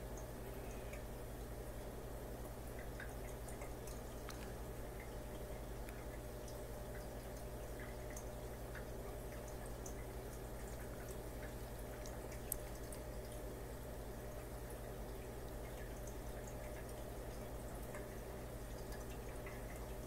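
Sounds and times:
aquarium hum: 0.0 - 20.0
faint water dripping: 0.0 - 20.0
small ticks: 2.4 - 5.1, 5.8 - 13.4.

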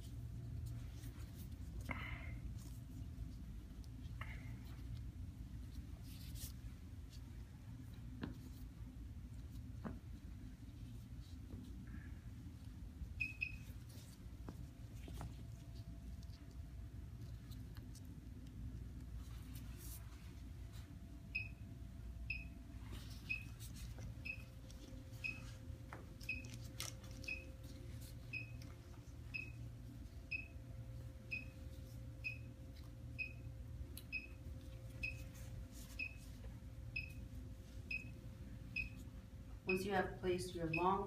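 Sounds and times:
ekg machine beeping: 13.2 - 13.8, 22.3 - 24.6, 28.3 - 28.6, 29.3 - 29.6, 30.3 - 30.6, 31.3 - 31.6, 32.2 - 32.5, 33.1 - 33.5, 37.9 - 39.0.

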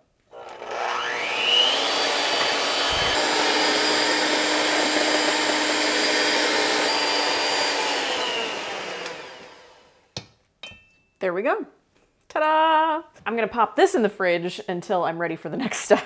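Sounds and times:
electric hand mixer whirring: 0.3 - 10.1.

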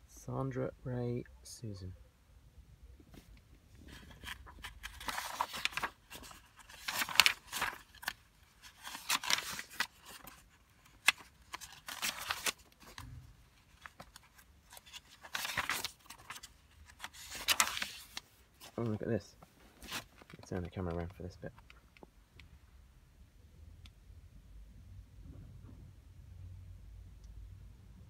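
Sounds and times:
paper pages turning: 3.1 - 21.8.

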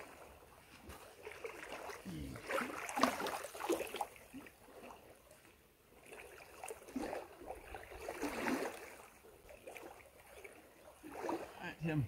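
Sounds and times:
creek water trickling: 0.0 - 12.0
soft water splashes: 0.0 - 12.0.

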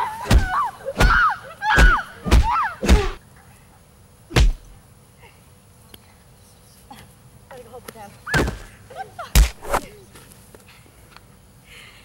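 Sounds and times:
punch thuds: 0.2 - 1.2, 1.8 - 3.2, 4.3 - 4.8, 9.4 - 9.9.

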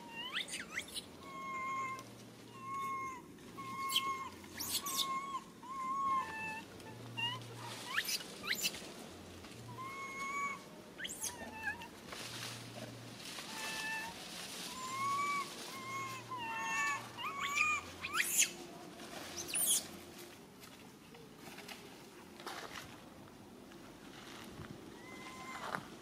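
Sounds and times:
baby monkey crying: 0.0 - 8.8, 9.7 - 11.9, 13.5 - 18.6, 25.0 - 25.8.

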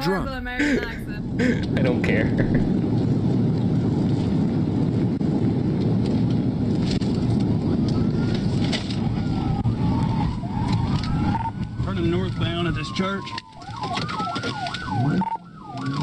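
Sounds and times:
car engine and road noise: 0.0 - 16.0
faint siren wail: 7.5 - 16.0.

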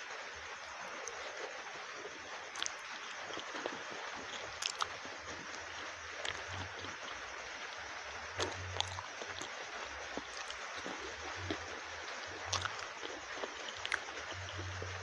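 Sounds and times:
steady hiss: 0.0 - 15.0
wet chewing mouth clicks: 2.6 - 7.0, 8.4 - 9.6, 10.2 - 15.0.

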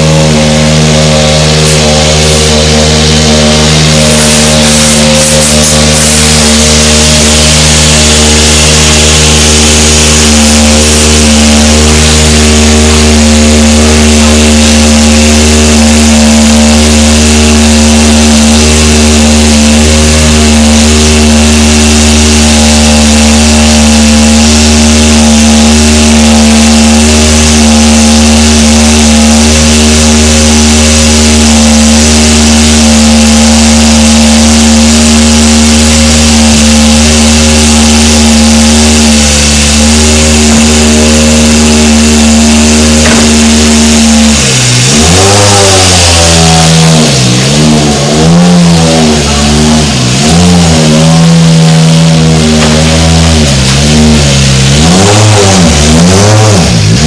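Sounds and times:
machine engine droning: 0.0 - 57.0
hiss: 3.6 - 13.1.

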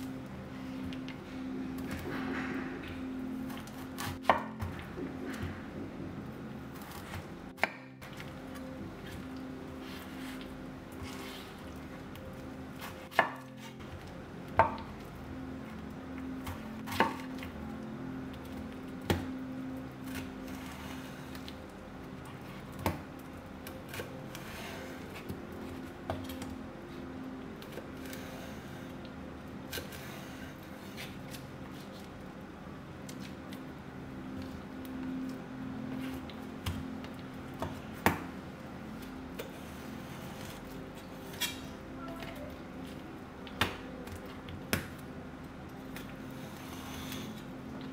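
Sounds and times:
faint steady hum: 0.0 - 47.9
knife cutting pineapple: 29.7 - 32.0, 39.4 - 42.4.

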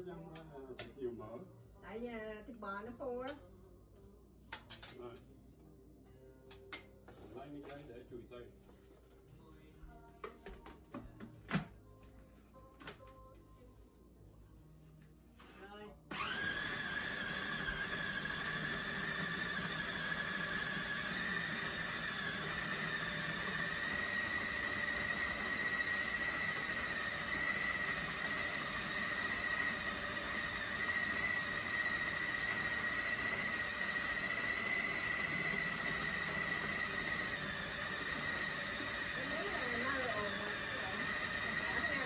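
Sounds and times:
food processor motor whining: 16.1 - 42.0.

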